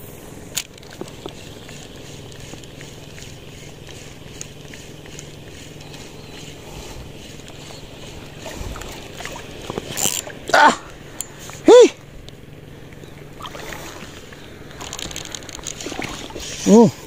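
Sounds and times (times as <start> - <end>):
wind and water hiss: 0.0 - 17.0
person exclaiming: 10.5 - 10.9, 11.6 - 12.0, 16.6 - 17.0.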